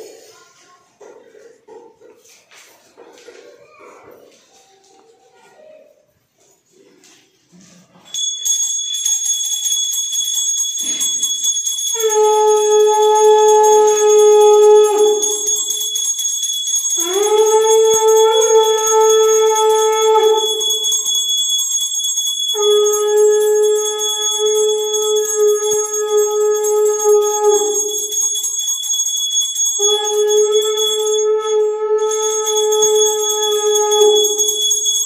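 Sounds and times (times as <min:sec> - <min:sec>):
hand bell ringing: 0:08.1 - 0:35.0.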